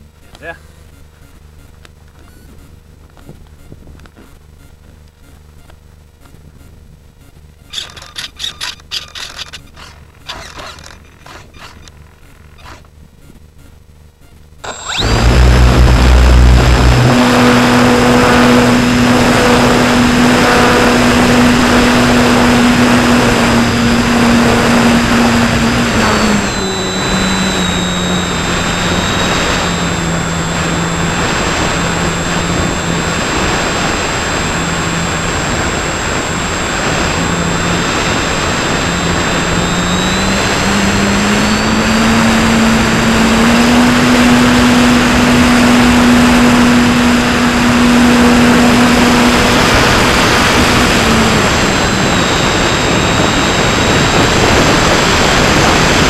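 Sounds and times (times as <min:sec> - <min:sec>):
electric motor whine: 0:07.6 - 0:13.0, 0:14.6 - 0:56.0
rushing air: 0:14.7 - 0:27.3.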